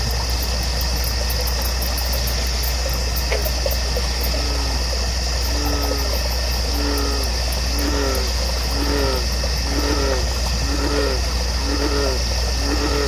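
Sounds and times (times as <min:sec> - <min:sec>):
high insect drone: 0:00.0 - 0:13.0
low steady hum: 0:00.0 - 0:13.0
two-toned animal call: 0:05.5 - 0:13.0.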